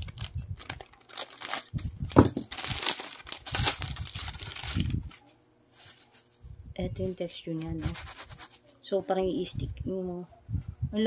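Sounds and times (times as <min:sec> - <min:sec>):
plastic bag crinkling: 0:00.0 - 0:06.4.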